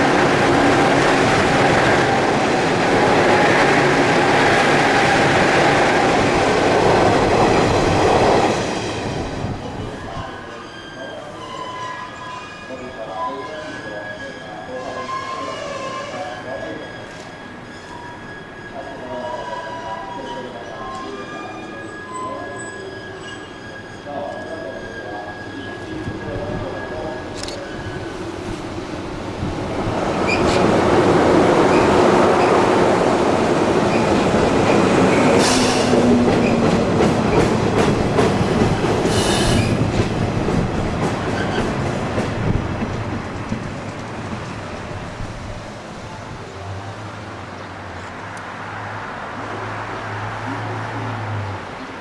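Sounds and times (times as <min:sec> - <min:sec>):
electric train passing: 0:00.0 - 0:15.2, 0:16.4 - 0:52.0
train wheels clattering: 0:33.7 - 0:44.9.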